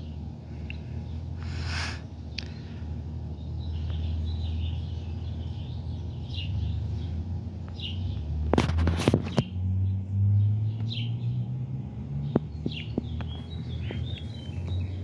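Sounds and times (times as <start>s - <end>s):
low mechanical hum: 0.0s - 15.0s
small birds chirping: 0.0s - 15.0s
sharp clicks and rustling: 8.4s - 9.5s.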